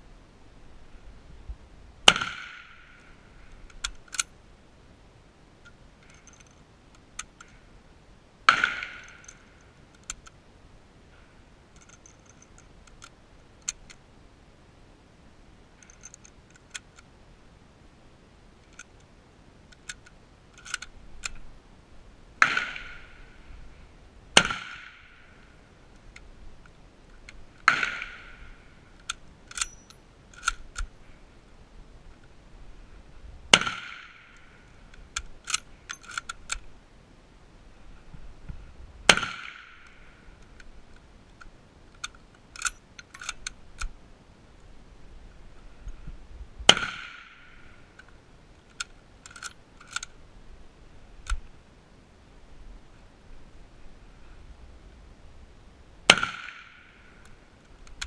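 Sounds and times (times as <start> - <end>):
rifle shots with echo: 2.1 - 3.0, 24.4 - 25.3, 27.6 - 28.6, 33.5 - 34.4, 39.1 - 40.1, 46.7 - 47.8, 56.1 - 56.9
metallic clicks of rifles handled: 2.1 - 4.4, 5.6 - 7.6, 8.5 - 10.4, 11.7 - 14.0, 15.8 - 17.1, 18.6 - 19.1, 19.7 - 21.5, 24.4 - 31.0, 33.6 - 36.7, 39.1 - 44.0, 46.7 - 50.2, 51.2 - 51.5, 56.1 - 58.0.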